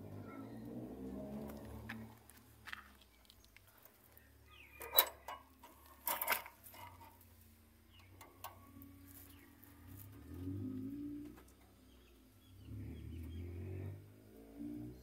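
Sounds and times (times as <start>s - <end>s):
wire cage clicking and rattling: 3.7s - 10.2s.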